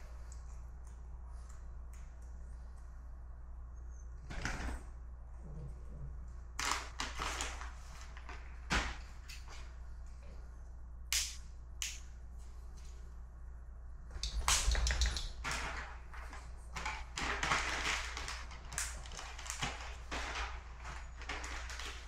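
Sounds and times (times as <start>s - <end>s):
objects rustling and clattering: 6.6s - 10.4s, 14.1s - 22.0s
sharp clicks: 14.2s - 15.4s.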